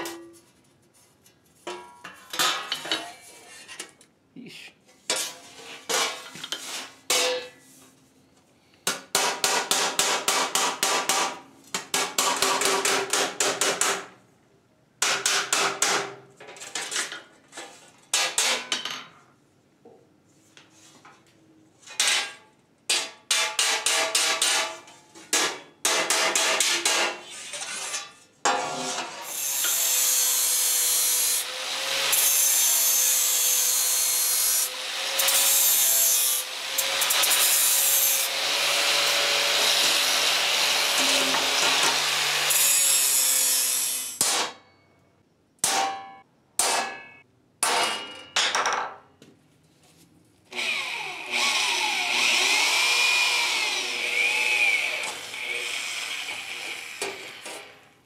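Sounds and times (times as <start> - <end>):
grinder whine: 34.6 - 44.2, 50.5 - 57.8.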